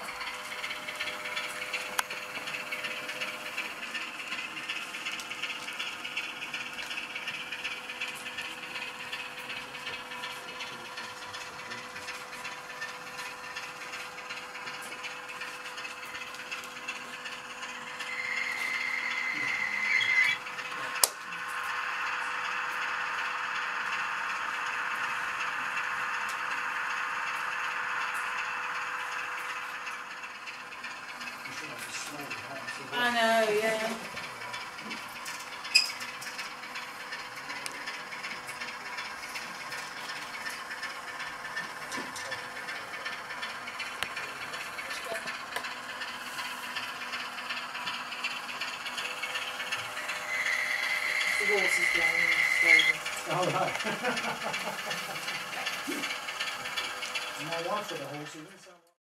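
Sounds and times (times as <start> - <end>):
diesel engine sound from small speaker: 0.0 - 59.0
steady high tone: 17.8 - 34.1, 48.9 - 53.4.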